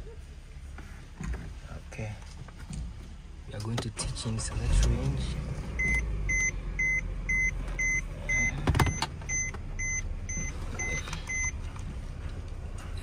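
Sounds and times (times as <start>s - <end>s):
car warning chime beeping: 5.8s - 11.7s.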